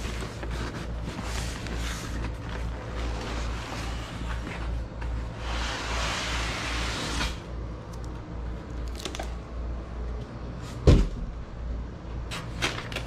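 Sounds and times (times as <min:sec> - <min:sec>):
cardboard scraping and rustling: 0:00.0 - 0:07.4
thump: 0:10.8 - 0:11.3.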